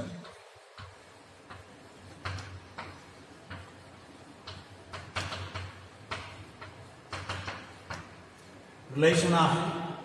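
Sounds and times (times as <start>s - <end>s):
chalk tapping and scratching: 0.7s - 8.5s.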